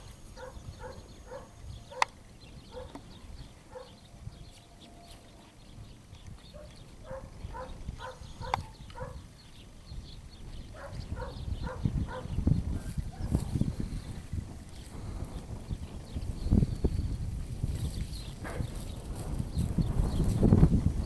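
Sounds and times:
wind rumble on microphone: 0:00.0 - 0:21.0
dog barking: 0:00.4 - 0:02.1, 0:02.7 - 0:03.0, 0:03.7 - 0:04.0, 0:06.6 - 0:09.2, 0:10.8 - 0:12.4.

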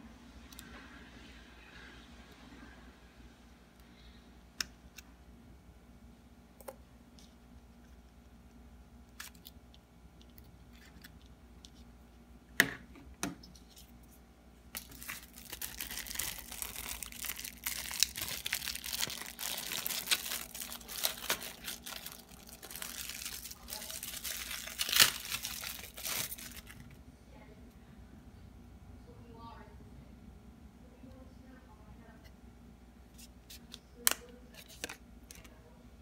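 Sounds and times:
plastic sleeve crinkling and tearing: 0:14.7 - 0:27.0.

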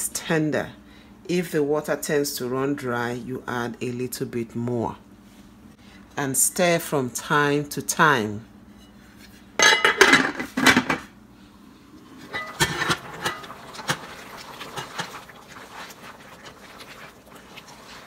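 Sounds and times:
metal pot lid clattering: 0:09.6 - 0:11.0, 0:12.2 - 0:15.3
wooden spoon stirring stew: 0:13.5 - 0:18.0.

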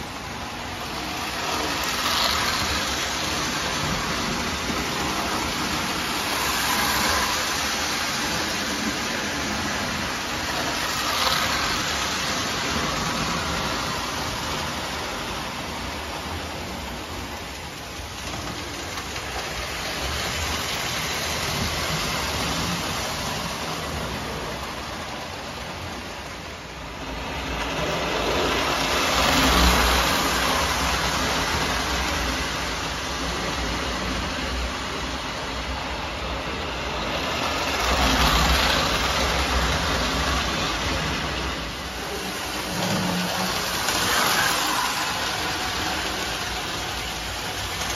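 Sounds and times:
toy train motor whir: 0:00.0 - 0:16.7, 0:27.6 - 0:35.7, 0:37.0 - 0:47.9.

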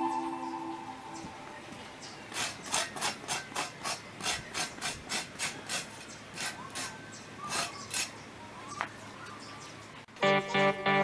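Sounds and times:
tool scraping dirt ground: 0:02.3 - 0:08.2.

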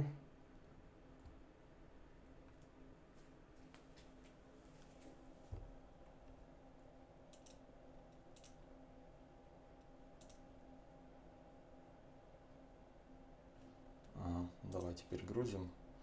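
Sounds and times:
faint steady hum: 0:00.0 - 0:16.0
computer mouse clicks: 0:07.3 - 0:08.6, 0:09.8 - 0:10.5, 0:14.7 - 0:15.0.

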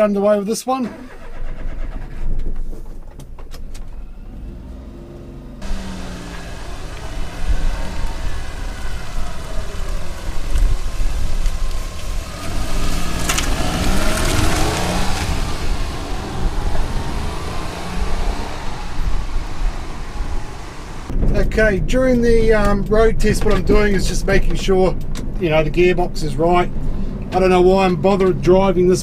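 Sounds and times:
truck engine passing by: 0:04.2 - 0:21.1.

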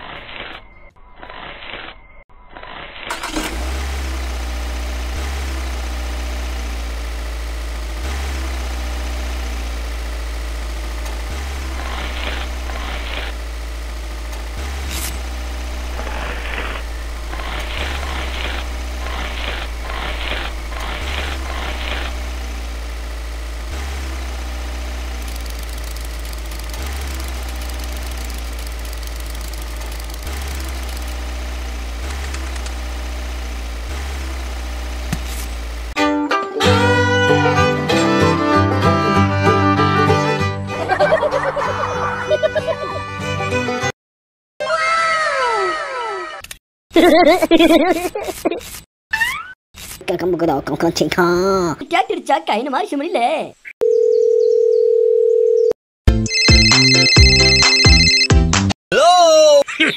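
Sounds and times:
rice mill motor humming: 0:03.1 - 0:36.0.

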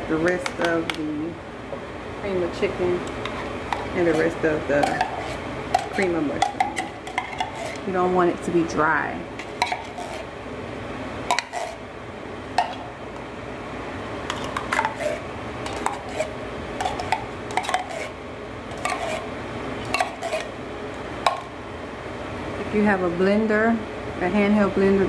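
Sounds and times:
spoon scraping foil pan: 0:03.2 - 0:07.9, 0:09.4 - 0:10.3, 0:11.3 - 0:11.8, 0:14.3 - 0:19.3, 0:19.9 - 0:20.5.

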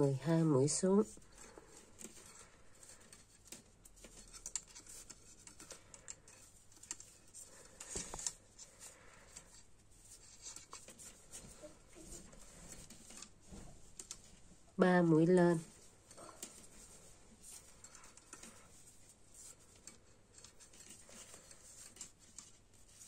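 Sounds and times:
knitting needles clicking: 0:00.9 - 0:09.6.

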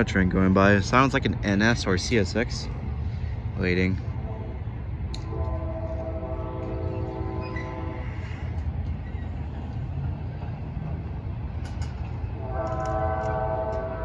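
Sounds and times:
passing train rumble: 0:00.0 - 0:14.0
locomotive air horn chord: 0:04.2 - 0:08.7, 0:12.3 - 0:14.0.

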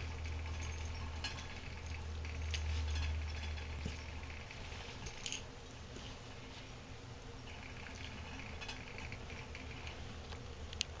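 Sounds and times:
animals scuffling on carpet: 0:03.8 - 0:06.9.

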